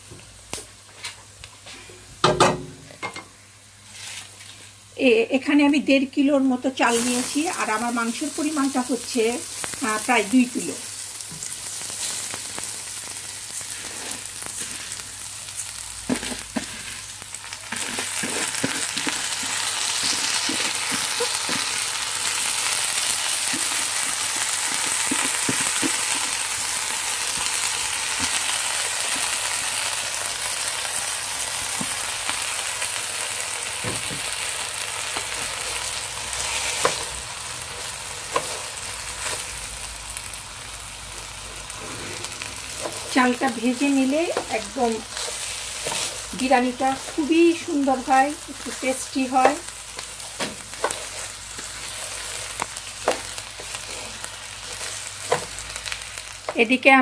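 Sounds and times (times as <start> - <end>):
rice sizzling in hot oil: 0.0 - 57.0
wooden spatula tapping and scraping: 17.7 - 21.8, 23.5 - 26.4, 48.6 - 51.8, 52.6 - 55.6.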